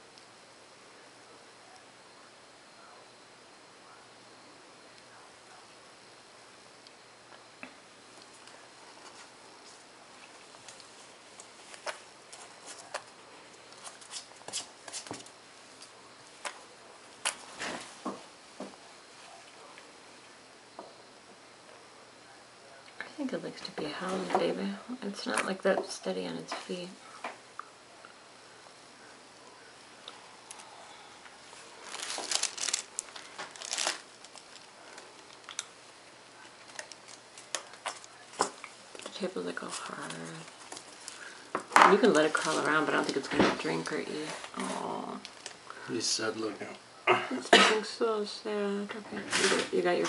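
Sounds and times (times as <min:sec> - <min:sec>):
rustling crinkling handling noise: 0:08.1 - 0:18.2, 0:30.1 - 0:45.7.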